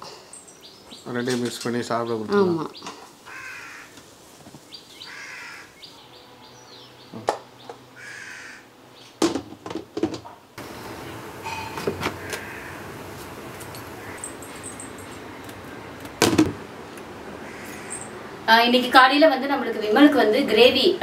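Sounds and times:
crow cawing: 0:02.9 - 0:04.0, 0:05.0 - 0:05.8, 0:08.0 - 0:08.7, 0:12.1 - 0:13.0, 0:13.9 - 0:14.3, 0:17.4 - 0:18.2.

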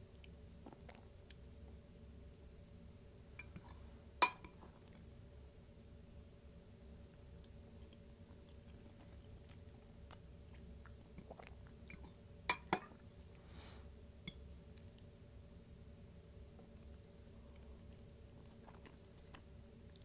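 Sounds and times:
close chewing: 0:17.5 - 0:20.0.

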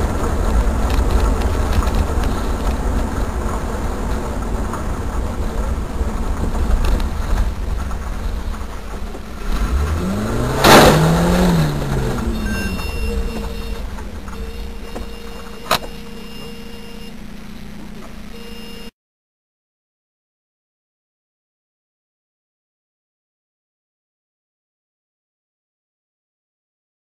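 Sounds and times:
vehicle road and engine rumble: 0:00.0 - 0:18.9.

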